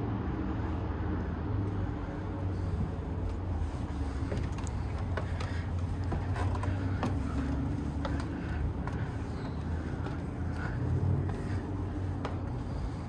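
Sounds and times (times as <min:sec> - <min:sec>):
steady low rumble: 0:00.0 - 0:13.0
footsteps on wooden stairs: 0:02.4 - 0:13.0
wood creaking: 0:03.2 - 0:13.0.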